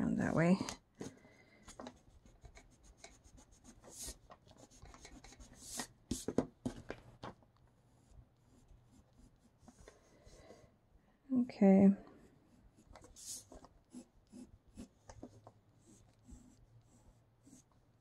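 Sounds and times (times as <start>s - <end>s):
pencil sketching on paper: 1.9s - 6.3s, 7.8s - 10.7s, 12.1s - 18.0s.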